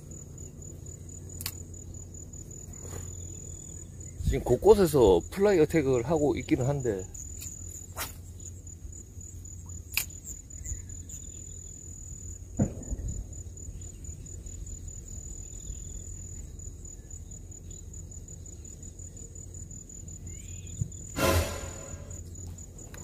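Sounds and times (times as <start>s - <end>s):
low background rumble: 0.0s - 21.2s
high-pitched insect trill: 0.0s - 23.0s
heavy thump: 21.2s - 22.2s.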